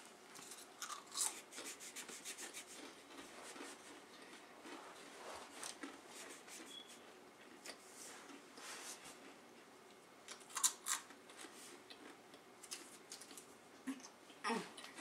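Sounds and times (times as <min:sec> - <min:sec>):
crackers crunching and snapping: 0:00.3 - 0:01.7, 0:02.5 - 0:06.0, 0:09.2 - 0:13.5.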